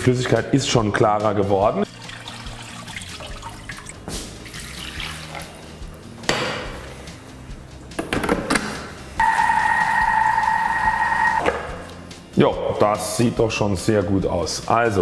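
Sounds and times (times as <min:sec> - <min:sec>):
water splashing into sink: 0:01.9 - 0:05.6.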